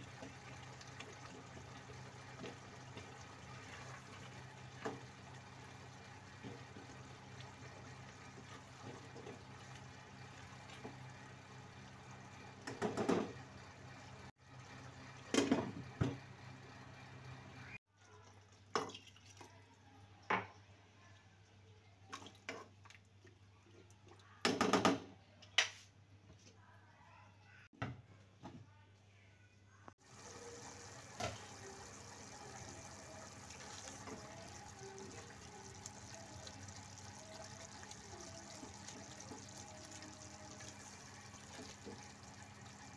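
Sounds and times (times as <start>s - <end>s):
minced meat bubbling in pot: 0.0s - 15.1s, 30.0s - 42.9s.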